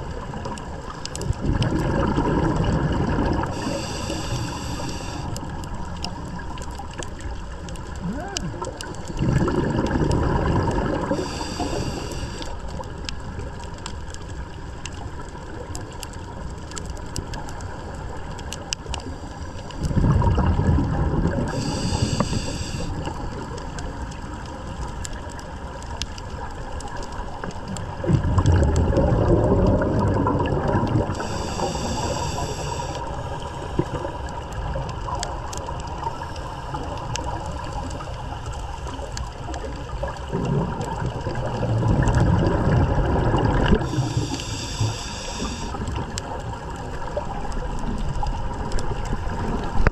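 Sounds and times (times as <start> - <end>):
exhaled bubbles gurgling: 0.0 - 49.9
steady underwater hiss: 0.0 - 49.9
faint clicks: 0.3 - 1.8, 3.3 - 10.2, 11.1 - 20.0, 21.2 - 42.8, 43.4 - 49.9
air hissing through regulator: 3.5 - 5.3, 11.1 - 12.5, 21.5 - 23.0, 31.1 - 33.0, 43.7 - 45.8.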